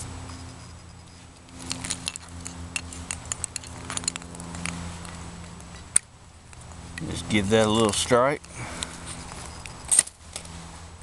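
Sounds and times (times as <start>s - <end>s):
small metal clicks and rattles: 0.3s - 7.2s.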